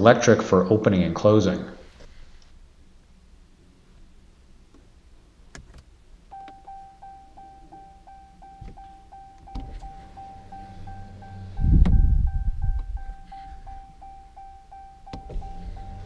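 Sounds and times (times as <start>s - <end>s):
regular ticking: 5.5s - 16.0s
power window motor whine: 6.3s - 16.0s.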